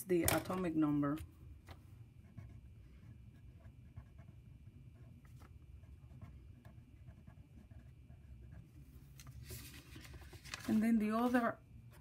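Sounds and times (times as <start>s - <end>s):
low room hum: 0.0s - 12.0s
pen scratching on paper: 2.2s - 5.1s, 5.8s - 8.7s.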